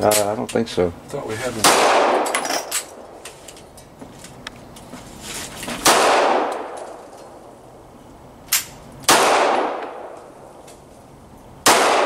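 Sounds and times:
pistol shots ringing: 5.8s - 7.0s, 8.6s - 10.2s, 11.6s - 12.0s.

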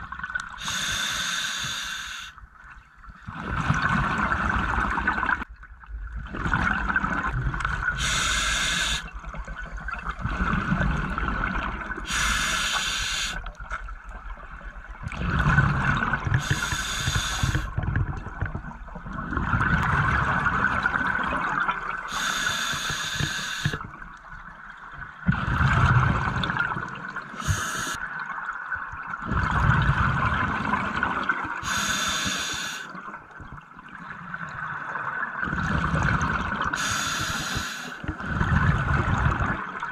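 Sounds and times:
regulator hissing inhalations: 0.6s - 2.4s, 8.0s - 9.1s, 12.1s - 13.4s, 16.4s - 17.7s, 22.1s - 23.8s, 27.4s - 28.0s, 31.6s - 32.9s, 36.8s - 38.0s
burble of exhaled bubbles: 3.2s - 8.0s, 9.1s - 12.1s, 13.5s - 22.1s, 23.2s - 31.6s, 32.9s - 36.8s, 38.0s - 39.9s.

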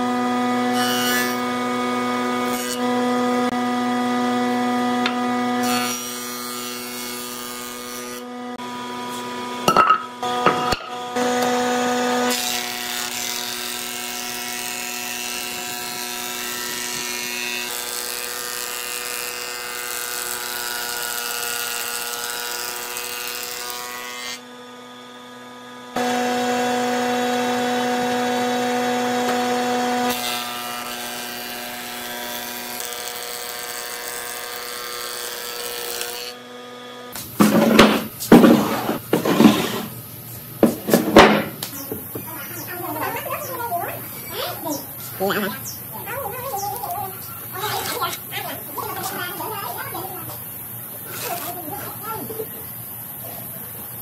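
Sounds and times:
cutterhead shaving wood: 11.2s - 24.5s, 26.0s - 40.0s
planer motor hum: 24.4s - 39.7s
sharp knocks: 40.6s - 42.2s.

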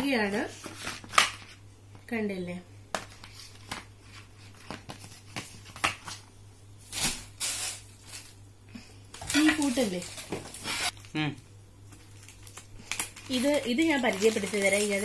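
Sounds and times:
plastic and cardboard rustling: 9.2s - 11.1s, 11.9s - 15.0s.

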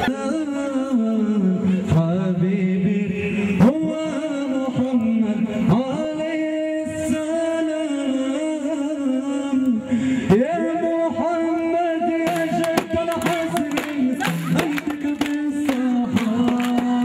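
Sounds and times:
man singing folk chant: 0.0s - 17.0s.

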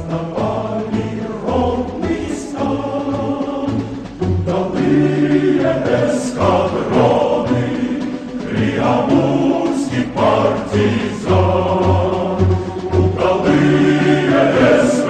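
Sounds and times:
choir singing sustained chords: 0.0s - 15.0s
instrumental accompaniment: 0.0s - 15.0s.

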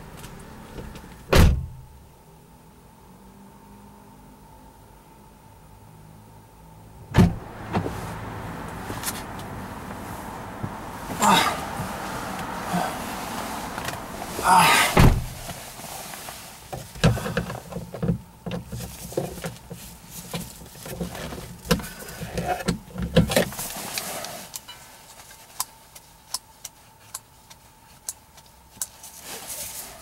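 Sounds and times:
rustle and thump: 7.1s - 26.0s.

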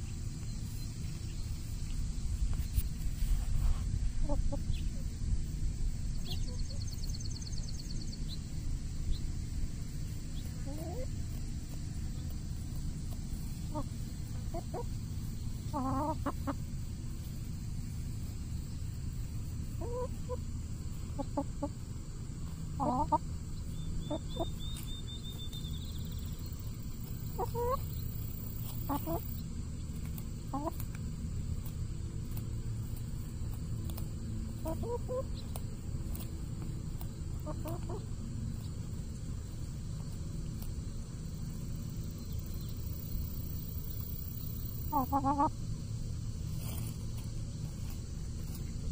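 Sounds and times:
steady low rumble: 0.0s - 48.9s
hens clucking: 4.2s - 5.0s, 10.0s - 40.8s, 41.5s - 45.7s.

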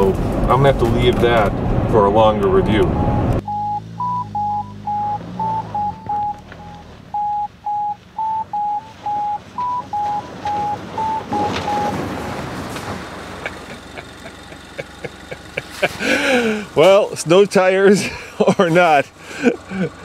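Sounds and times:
low engine hum: 0.0s - 20.0s
rush of engine and tyres: 0.0s - 20.0s
two-pitch electronic beeps: 2.8s - 12.4s.

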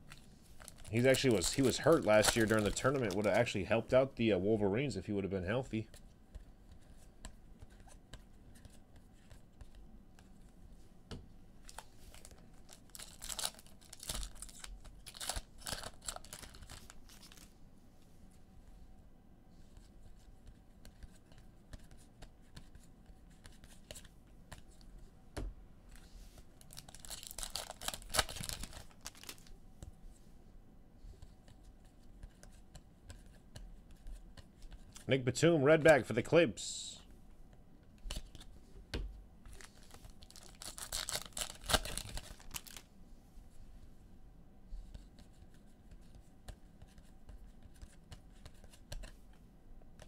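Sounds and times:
wrappers tearing and crinkling: 0.6s - 3.5s, 11.7s - 17.5s, 26.6s - 29.5s, 39.5s - 42.8s.

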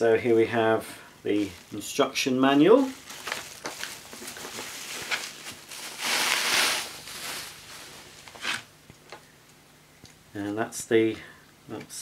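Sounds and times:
plastic packaging crinkling: 1.4s - 8.7s.

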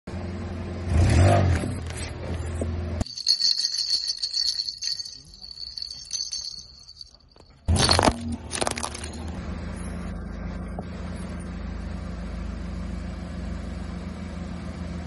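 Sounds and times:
toy bells jingling: 3.0s - 9.2s
toy set down on asphalt: 7.4s - 9.3s.

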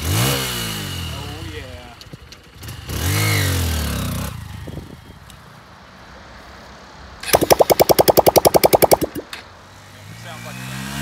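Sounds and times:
rapid sharp pulses: 7.3s - 9.3s.

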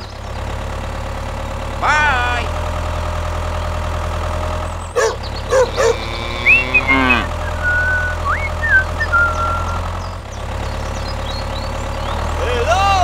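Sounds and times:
tractor engine idling: 0.0s - 13.0s
squeaky chirps and clicks: 5.0s - 9.9s
high whistling glides: 6.4s - 9.9s.

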